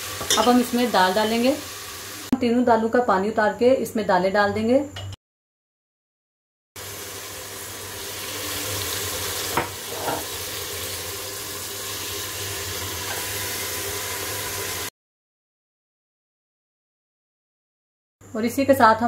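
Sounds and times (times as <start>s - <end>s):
lentils sizzling in a pot: 0.0s - 2.3s, 6.8s - 14.9s.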